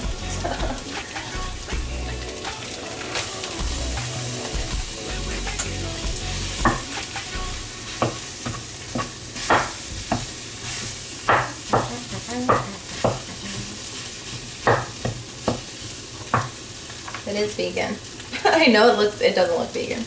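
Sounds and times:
food sizzling in a frying pan: 0.0s - 20.0s
wooden spoon scraping a pan: 8.4s - 11.1s.

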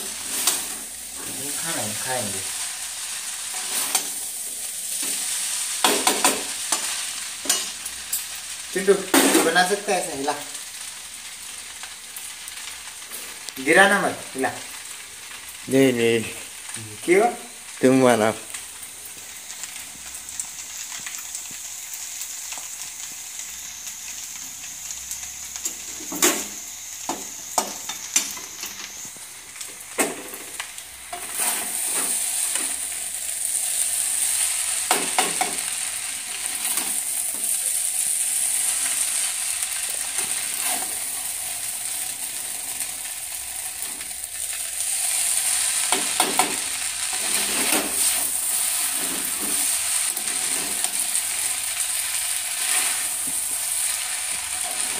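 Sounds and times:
noodles sizzling in a pan: 0.0s - 54.9s
tongs clinking against pan: 6.0s - 8.3s.

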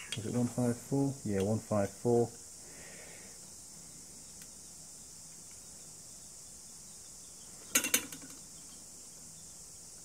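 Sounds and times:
high-pitched workshop hiss: 0.0s - 10.0s.

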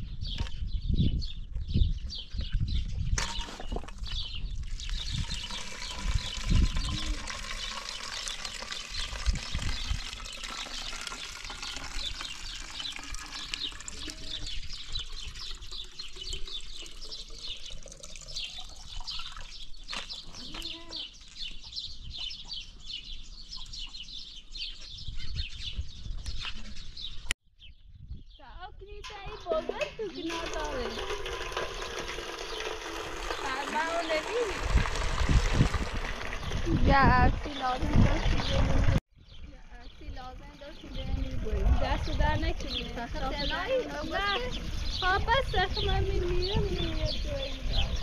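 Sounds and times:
birds chirping: 0.0s - 48.0s
water trickling and splashing: 3.2s - 20.6s, 29.0s - 48.0s.

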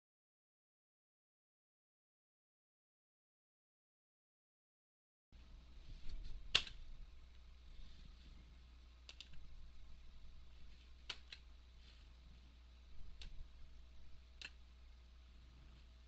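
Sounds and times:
low steady hum: 5.4s - 16.0s.

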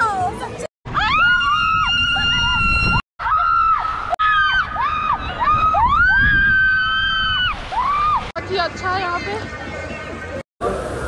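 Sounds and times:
women screaming: 0.9s - 8.3s.

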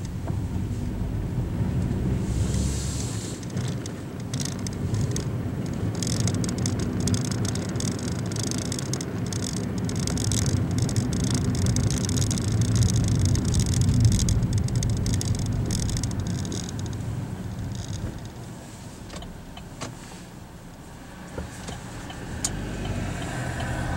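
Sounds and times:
car engine and tyres rumble: 0.0s - 23.9s
high uneven crackle: 3.0s - 18.5s.

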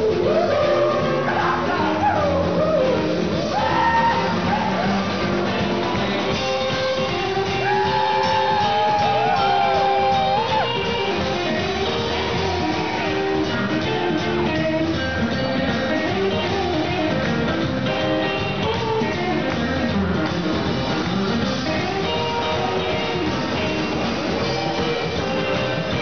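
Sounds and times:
electric guitar lead: 0.0s - 26.0s
live rockabilly band playing: 0.0s - 26.0s.

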